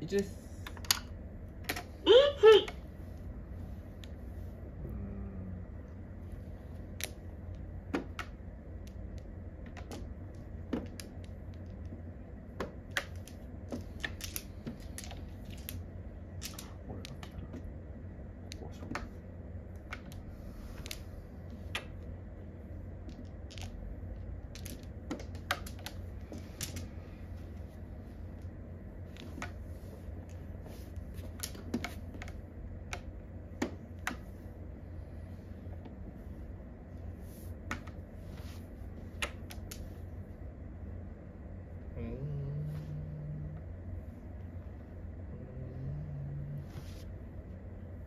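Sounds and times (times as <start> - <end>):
steady low hum: 0.0 - 48.0
mahjong tiles clicking: 6.9 - 17.8, 22.9 - 27.0.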